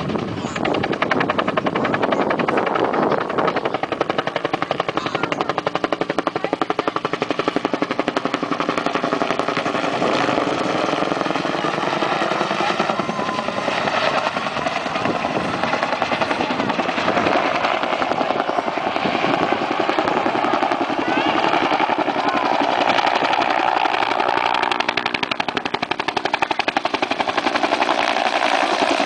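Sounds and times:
helicopter rotor blade slap: 0:00.0 - 0:29.0.

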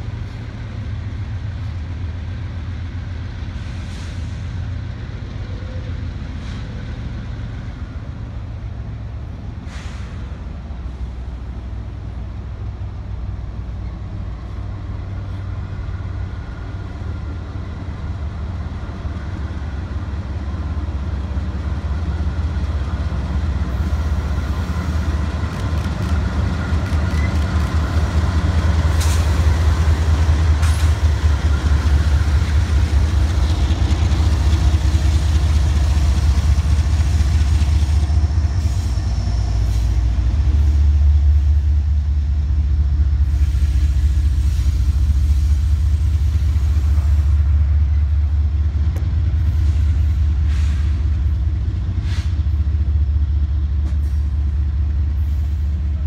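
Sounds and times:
diesel locomotive engines rumbling: 0:00.0 - 0:56.0
train wheels clicking over rail joints: 0:23.7 - 0:41.6.

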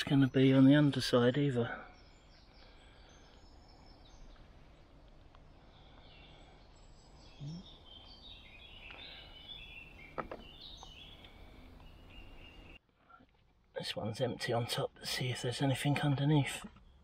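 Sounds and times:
birdsong: 0:00.0 - 0:17.0.

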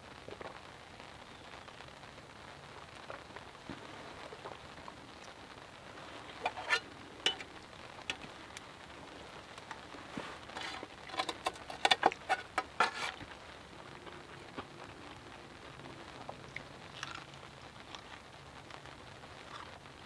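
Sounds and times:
soft steady hiss: 0:00.0 - 0:20.0
utensil scraping and clinking plate: 0:06.3 - 0:07.5, 0:10.5 - 0:13.2.

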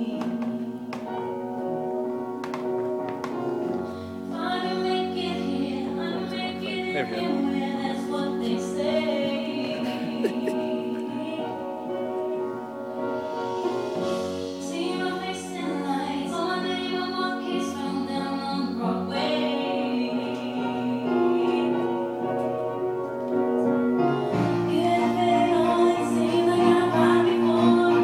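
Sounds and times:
accompanying music: 0:00.0 - 0:28.0
man singing into microphone: 0:06.7 - 0:07.6.

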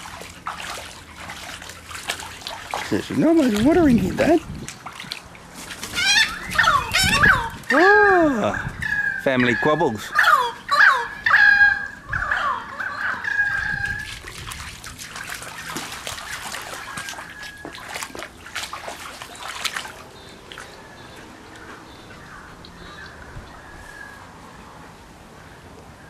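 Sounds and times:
dog splashing in water: 0:00.0 - 0:07.8, 0:13.7 - 0:21.7
bird calls: 0:05.9 - 0:14.2, 0:19.3 - 0:25.6.

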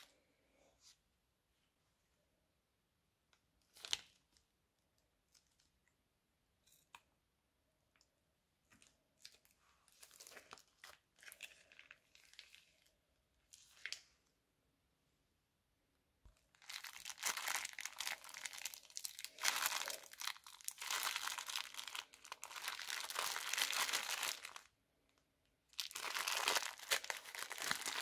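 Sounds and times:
plastic bag crinkling and rustling: 0:08.8 - 0:12.9, 0:16.5 - 0:24.7, 0:25.7 - 0:28.0.

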